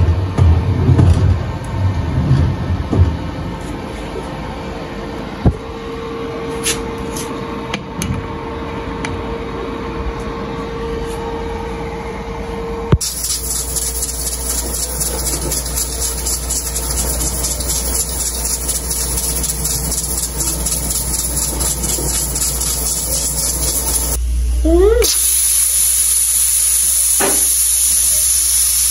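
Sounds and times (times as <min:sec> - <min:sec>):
stove blower hum: 0:07.7 - 0:28.9.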